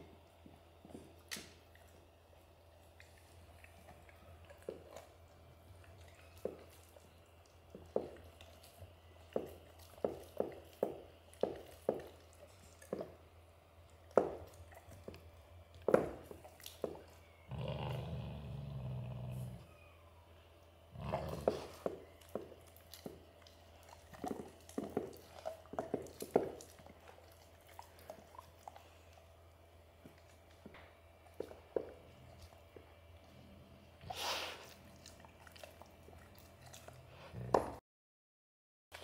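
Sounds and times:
dog growling: 17.5 - 19.7, 20.9 - 22.1
dog crunching on a bone: 21.0 - 33.2, 34.6 - 37.1.

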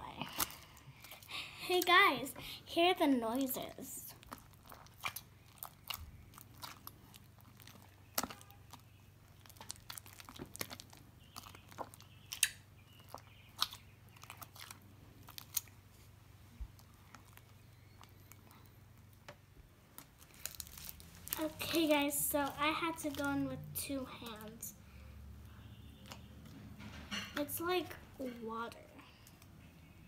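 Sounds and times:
slime squelching and popping: 4.1 - 16.0, 16.6 - 24.7.

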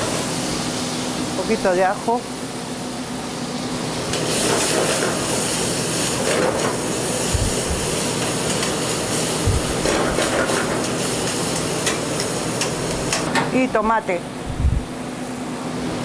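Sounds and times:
food sizzling in hot wok: 0.0 - 13.3
dull low thumps: 14.5 - 14.9.

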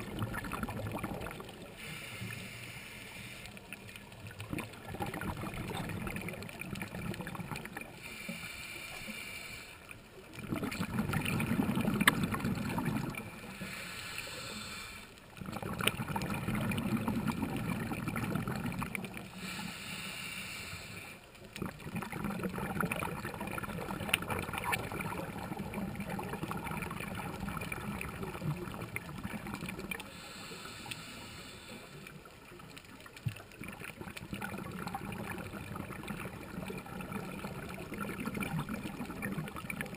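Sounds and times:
exhaled air bubbling: 0.0 - 39.9
regulator inhale hiss: 1.6 - 3.8, 7.9 - 10.0, 13.4 - 15.3, 19.3 - 21.4, 30.0 - 32.3.

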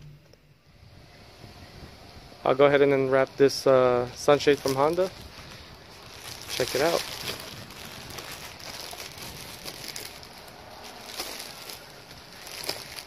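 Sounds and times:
plastic packaging crinkling: 4.1 - 13.0.

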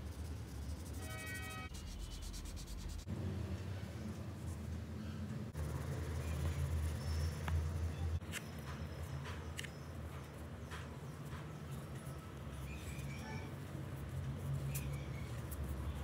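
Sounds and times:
felt-tip pens scratching on paper: 0.0 - 3.1.

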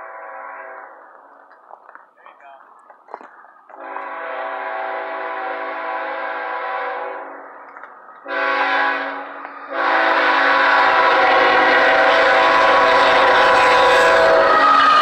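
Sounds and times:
locomotive air horn blasts: 0.0 - 1.0, 3.8 - 7.5, 8.2 - 15.0
rumble of approaching train: 0.0 - 15.0.

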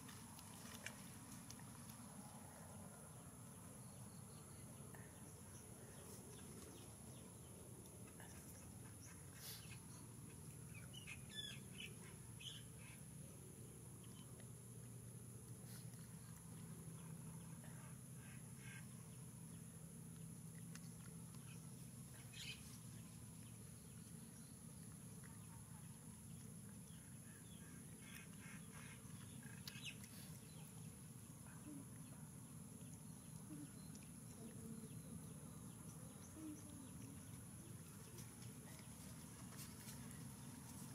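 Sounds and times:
quiet animal calls: 15.6 - 24.0, 24.9 - 40.7.

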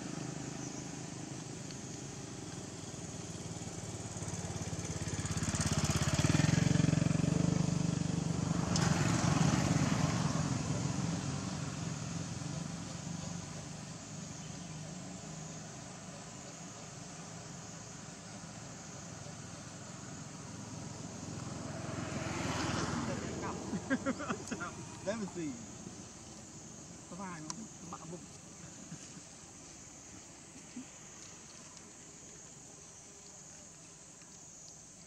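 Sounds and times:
vehicle engine passing by: 3.2 - 16.2, 18.4 - 28.2.

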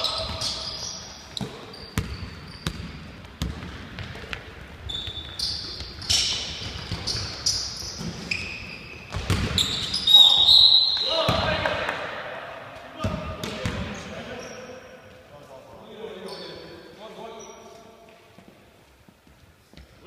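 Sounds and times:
sneaker squeaks: 0.0 - 11.4, 13.0 - 15.0, 16.1 - 18.1
basketball bouncing on wooden floor: 1.4 - 7.3, 9.1 - 9.7.

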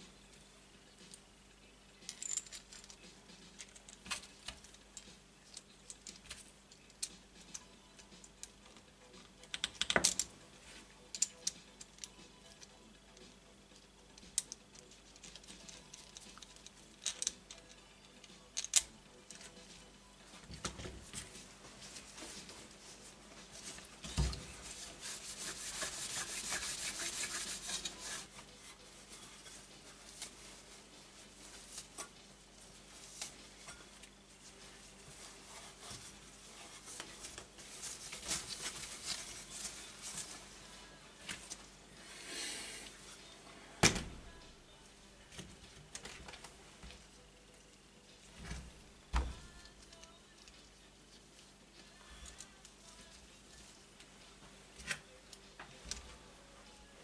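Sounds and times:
paper towel rubbing on metal pipe: 21.8 - 32.0, 34.4 - 40.5.

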